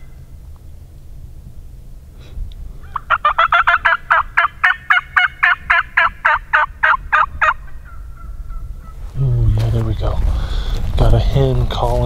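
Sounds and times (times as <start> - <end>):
turkey yelping: 2.8 - 9.1.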